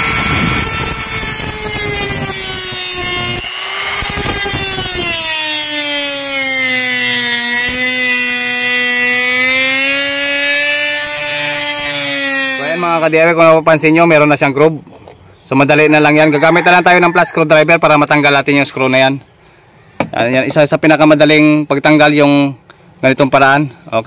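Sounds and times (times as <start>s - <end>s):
disc grinding on metal: 0.0s - 13.3s
mini grinder whining: 0.0s - 13.3s.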